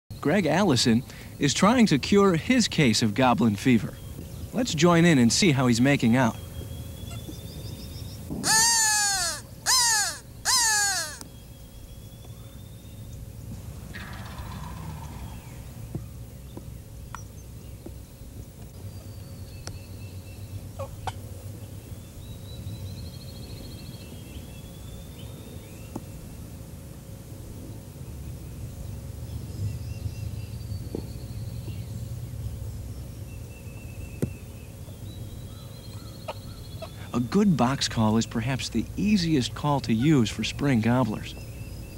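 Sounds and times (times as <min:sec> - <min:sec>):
songbird calls and trills: 0:00.1 - 0:13.3, 0:13.9 - 0:26.4, 0:28.2 - 0:41.9
low background rumble: 0:00.1 - 0:41.9
crow cawing: 0:08.4 - 0:11.2.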